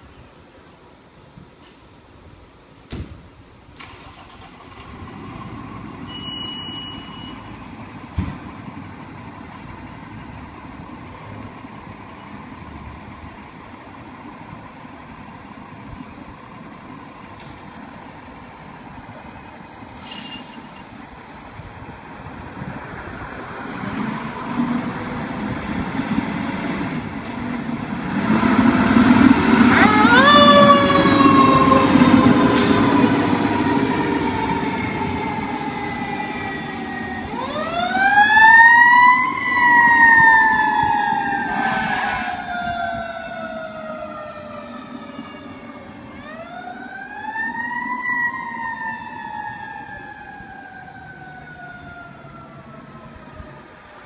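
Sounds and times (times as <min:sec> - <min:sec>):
truck engine rumbling: 0:03.6 - 0:54.0
fire engine siren: 0:04.1 - 0:12.0, 0:26.8 - 0:54.0.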